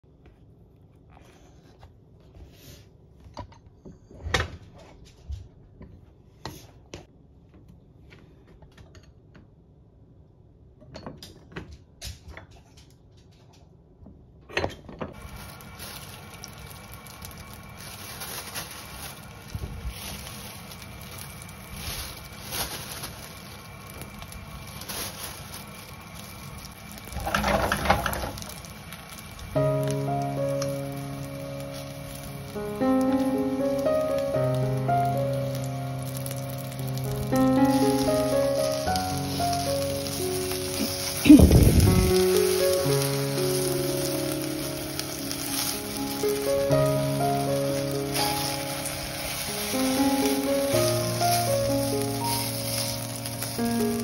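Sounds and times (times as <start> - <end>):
steady hiss with faint hum: 14.9 - 54.0
rustling: 15.2 - 54.0.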